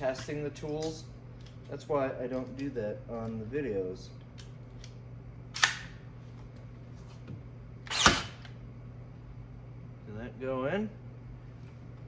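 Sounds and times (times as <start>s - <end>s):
pin nailer clicks: 7.9s - 8.5s.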